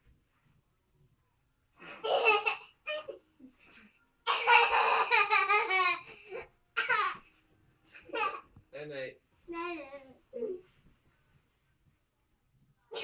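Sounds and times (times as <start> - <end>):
child laughing: 4.5 - 6.1.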